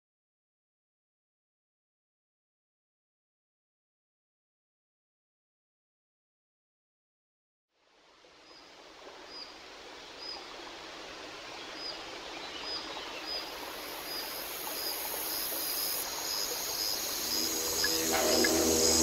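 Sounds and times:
rushing water: 7.9 - 19.0.

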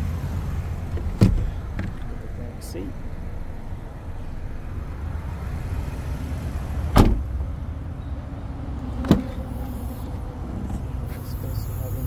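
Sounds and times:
car door shutting with thud: 0.9 - 2.1, 6.9 - 7.3, 9.0 - 9.4.

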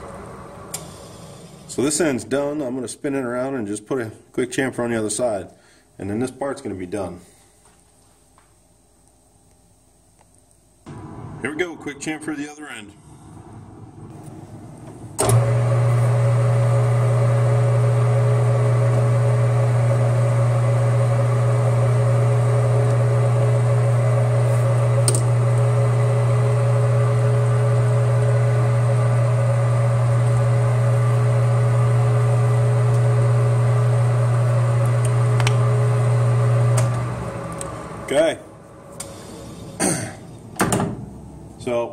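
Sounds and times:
metal lathe motor hum: 15.2 - 39.8.

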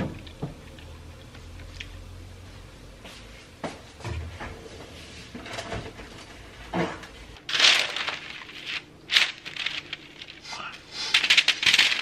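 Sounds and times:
baking paper crinkling: 7.4 - 12.0.

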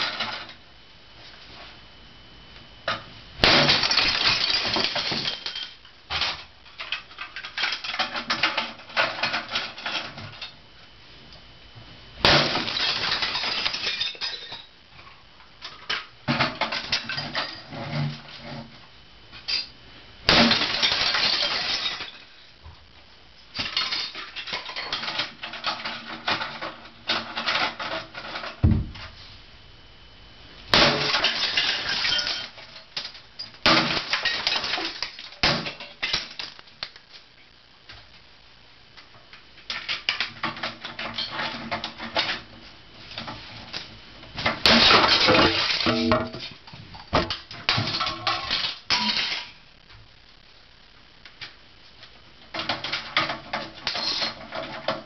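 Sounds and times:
hammer smashing brittle plastic: 3.4 - 6.4, 12.2 - 14.6, 20.3 - 22.2, 30.7 - 36.6, 44.4 - 46.4.

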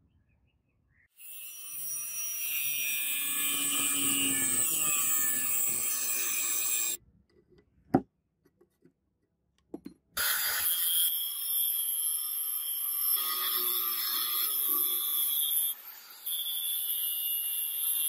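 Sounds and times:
angle grinder whining: 1.2 - 7.0.

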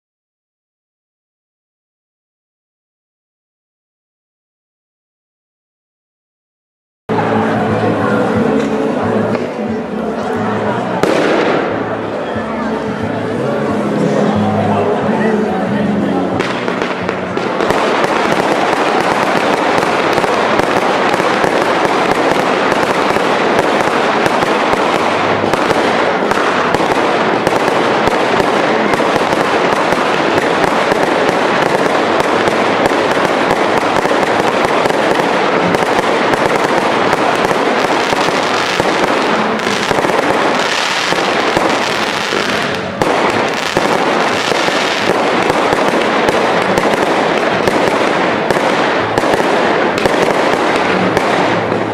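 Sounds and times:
fireworks launching and bursting: 11.0 - 12.2, 16.4 - 51.9.

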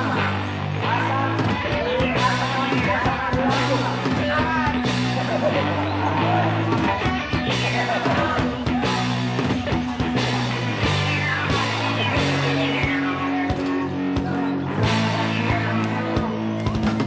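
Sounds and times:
music with guitar and drums: 0.0 - 17.0.

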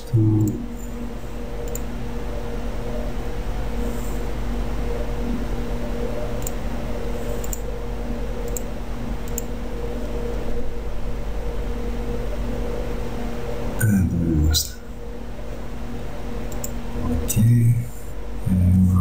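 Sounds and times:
background hum and hiss: 0.0 - 19.0
computer mouse clicks: 0.4 - 0.6, 1.6 - 1.9, 6.4 - 6.6, 7.3 - 7.7, 8.4 - 9.5, 16.5 - 16.8.

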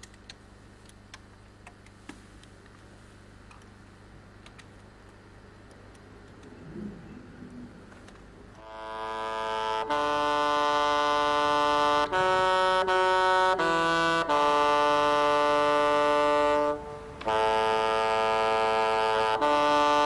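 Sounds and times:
solo bassoon melody: 8.6 - 20.0.

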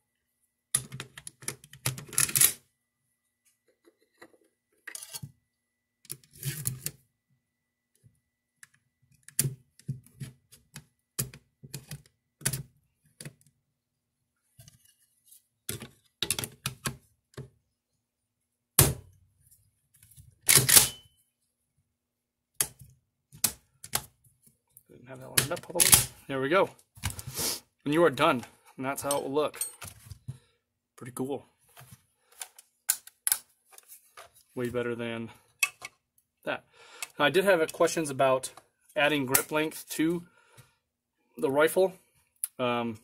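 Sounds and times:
metal gun parts clicking and scraping: 3.8 - 5.3, 29.0 - 30.1, 35.6 - 36.0.

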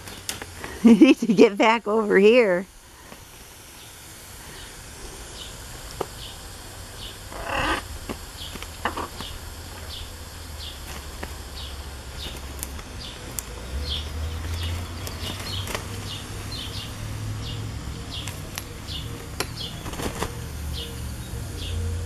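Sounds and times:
parrot flapping wings: 10.6 - 17.2, 18.2 - 20.7.

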